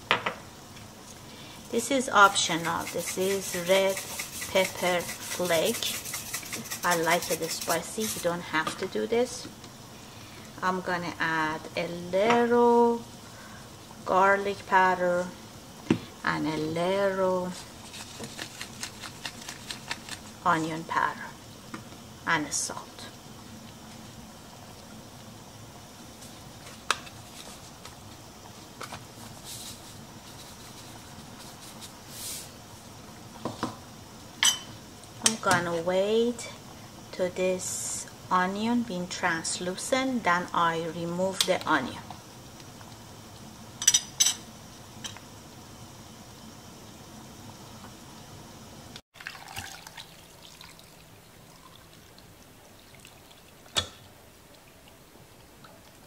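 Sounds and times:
broth boiling and bubbling: 0.6s - 8.7s, 15.4s - 35.3s, 44.6s - 56.0s
broth pouring and splashing: 49.1s - 56.0s.

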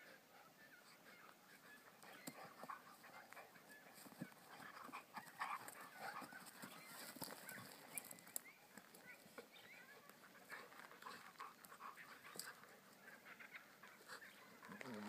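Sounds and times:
puppies panting: 0.0s - 15.0s
puppies scuffling: 1.8s - 13.0s.

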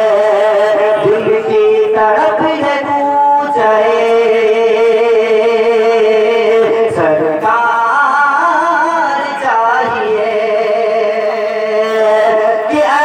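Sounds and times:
man singing over a pa: 0.0s - 13.0s.

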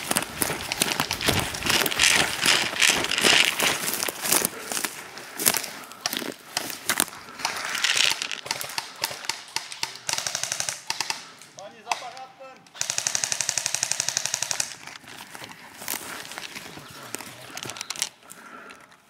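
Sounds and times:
airsoft rifle full-auto bursts: 10.0s - 11.3s, 12.8s - 14.8s.

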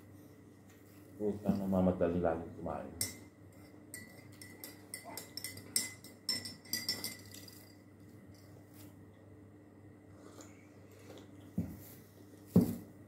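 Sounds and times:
faint steady hum: 0.0s - 13.0s
tableware clinking: 3.0s - 8.6s.

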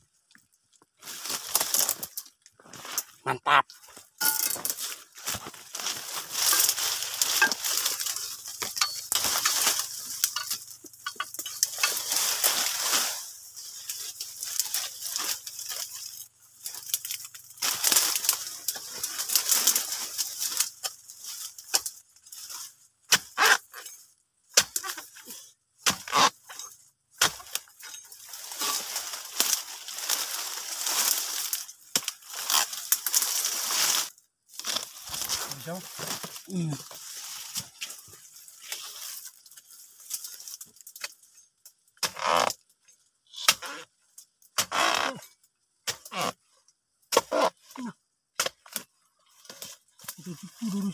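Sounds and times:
dry leaves crackling underfoot: 0.0s - 23.1s, 27.4s - 41.3s, 48.8s - 50.9s.

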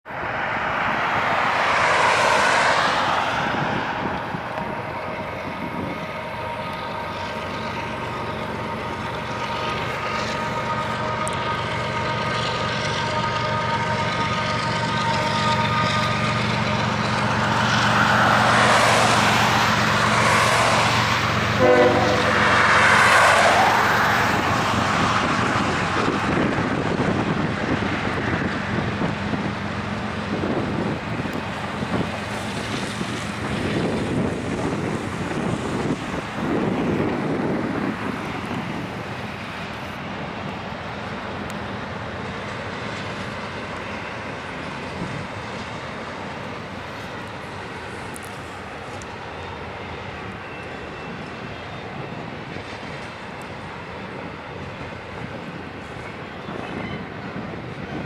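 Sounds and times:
low rumble of diesel engines: 0.1s - 58.0s
diesel locomotive air horn: 3.5s - 25.0s.

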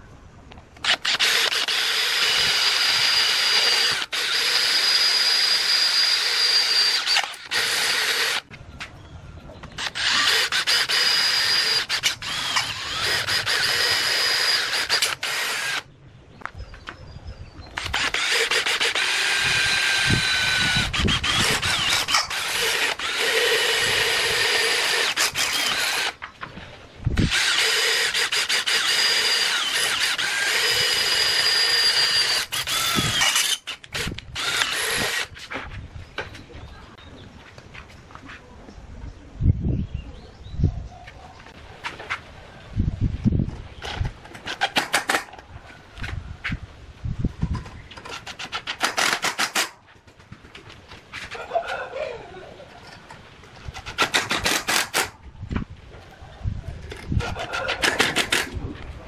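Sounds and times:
cordless drill whining: 0.8s - 8.4s, 9.8s - 15.9s, 17.8s - 26.2s, 27.2s - 35.4s
drill bit grinding metal: 0.8s - 8.4s, 9.8s - 15.8s, 17.8s - 26.2s, 27.2s - 35.4s.

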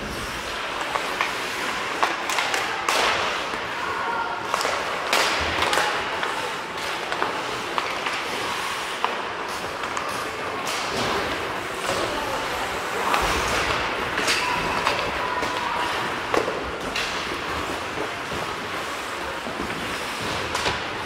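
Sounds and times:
sticks and puck clacking: 0.1s - 21.0s
skates scraping on ice: 4.4s - 21.0s.

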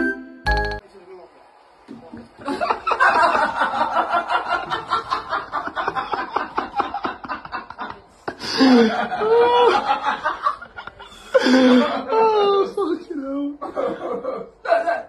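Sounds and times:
person snickering: 7.4s - 9.8s.

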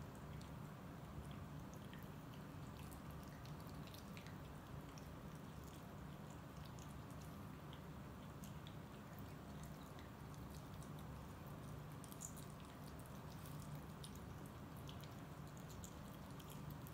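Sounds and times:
cats chewing wet clicks: 0.0s - 16.9s
low steady hum: 0.0s - 16.9s.

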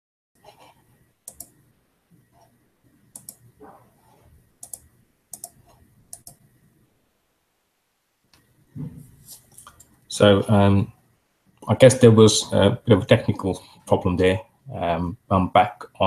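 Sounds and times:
computer mouse clicks: 0.4s - 1.6s, 2.4s - 6.5s, 9.5s - 10.0s
soft handling noise: 8.3s - 10.0s.

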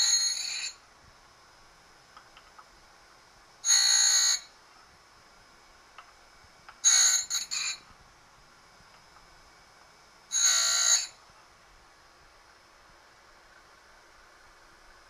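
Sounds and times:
high-pitched metal grinding: 0.0s - 0.8s, 3.7s - 4.5s, 6.8s - 7.8s, 10.3s - 11.2s.

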